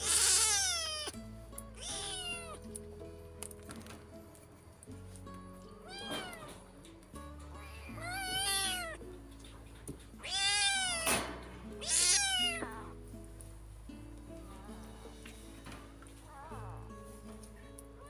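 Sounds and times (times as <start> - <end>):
kitten meowing: 0.0 - 1.2, 1.8 - 2.6, 5.8 - 6.6, 7.9 - 9.0, 10.2 - 11.2, 11.8 - 13.0
soft background music: 0.0 - 18.0.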